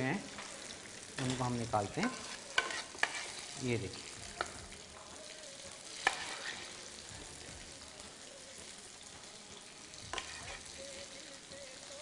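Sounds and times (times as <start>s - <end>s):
food sizzling in oil: 0.0s - 12.0s
spoon clacking against pan: 0.2s - 7.0s, 10.0s - 11.1s.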